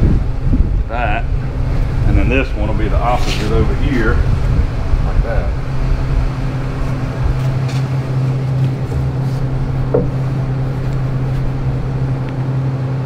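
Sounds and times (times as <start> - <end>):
low machine hum: 0.0 - 13.0
light knock: 9.9 - 10.2.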